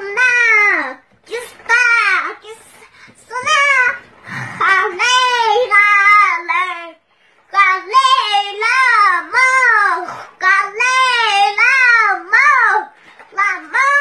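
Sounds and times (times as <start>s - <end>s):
child singing: 4.6s - 14.0s.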